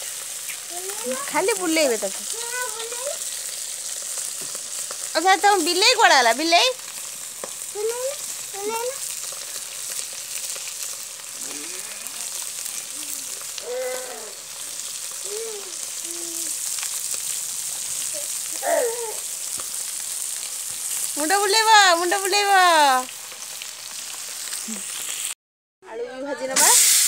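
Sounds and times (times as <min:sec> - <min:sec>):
hot oil sizzling in a pan: 0:00.0 - 0:25.4, 0:26.2 - 0:27.0
voices: 0:21.2 - 0:23.1.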